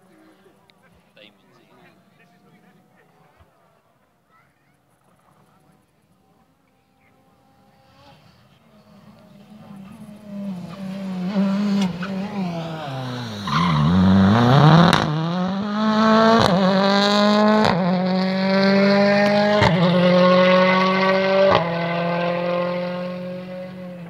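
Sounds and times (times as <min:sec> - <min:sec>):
rally car engine accelerating: 0:06.9 - 0:24.0.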